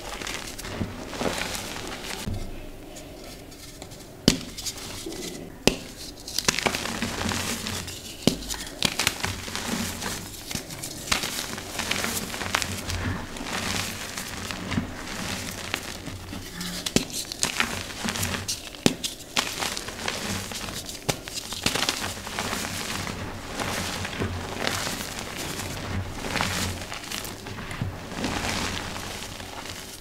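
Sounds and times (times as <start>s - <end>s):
soft dusty rustling: 0.0s - 30.0s
chalk crunching and snapping: 3.6s - 30.0s.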